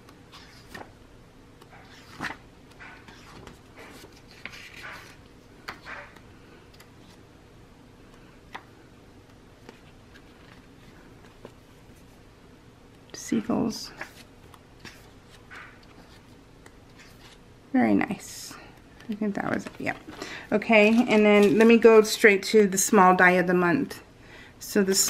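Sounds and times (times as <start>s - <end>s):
paper rustling: 1.7s - 7.2s, 9.6s - 12.2s, 19.5s - 21.9s.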